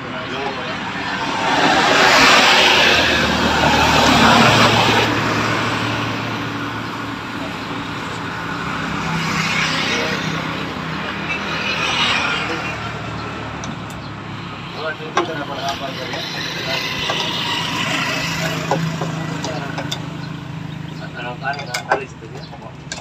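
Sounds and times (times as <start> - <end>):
passing motor vehicles: 0.0 - 23.0.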